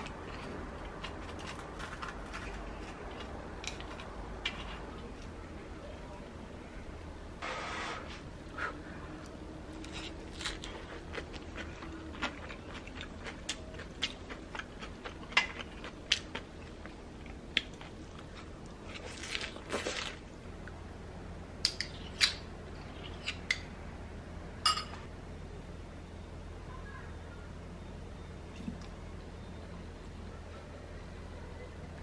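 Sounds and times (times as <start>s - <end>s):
crisp dumpling crunching: 0.0s - 5.3s, 9.8s - 20.3s.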